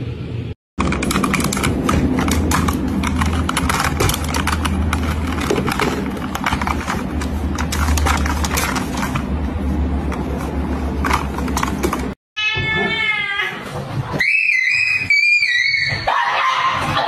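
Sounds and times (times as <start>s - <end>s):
keyboard keys clacking: 0.8s - 10.4s.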